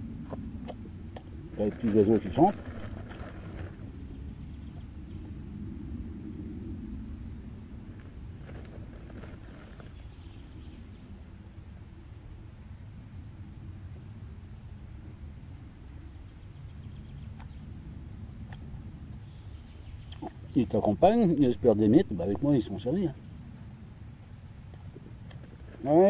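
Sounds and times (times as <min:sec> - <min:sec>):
low steady rumble: 0:00.0 - 0:26.0
songbirds singing: 0:00.0 - 0:26.0.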